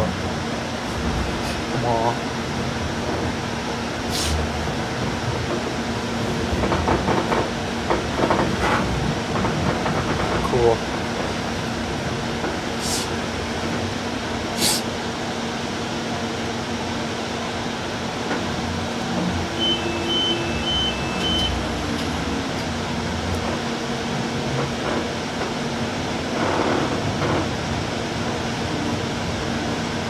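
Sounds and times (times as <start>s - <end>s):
rail car running rumble: 0.0s - 30.0s
two-pitch electronic beeps: 19.6s - 21.6s.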